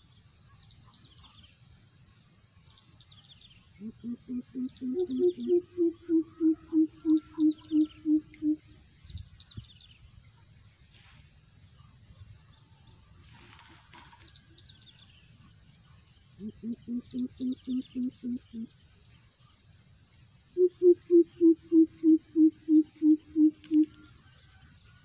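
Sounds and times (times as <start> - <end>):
bird giving low hoots: 3.8 - 8.8, 16.4 - 18.7, 20.6 - 24.1.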